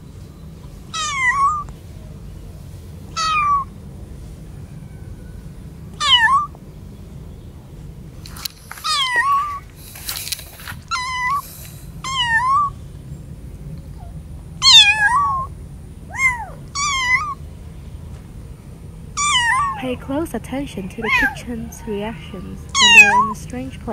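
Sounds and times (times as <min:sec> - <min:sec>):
kittens meowing: 0:00.9 - 0:01.7, 0:03.1 - 0:03.7, 0:05.9 - 0:06.6, 0:08.7 - 0:10.0, 0:10.8 - 0:12.8, 0:14.0 - 0:15.5, 0:16.1 - 0:17.4, 0:19.2 - 0:20.0, 0:20.7 - 0:23.6
short rustling: 0:08.2 - 0:12.0.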